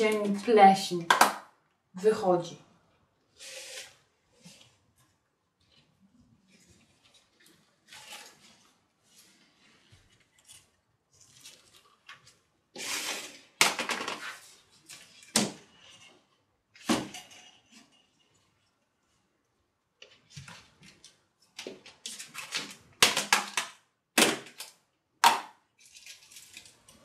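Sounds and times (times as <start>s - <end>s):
rustling: 3.4s - 13.4s.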